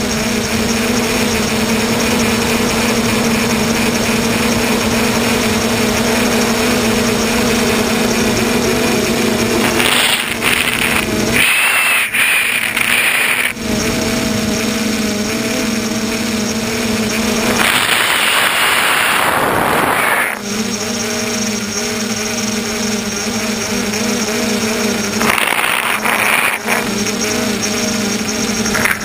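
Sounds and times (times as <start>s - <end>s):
drone propellers humming: 0.0s - 29.0s
loud rushing noise: 16.9s - 20.4s.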